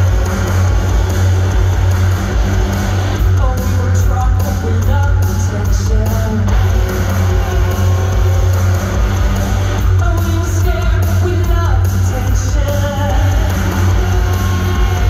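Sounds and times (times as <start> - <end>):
rock band playing live: 0.0 - 15.0
woman singing: 10.0 - 13.9.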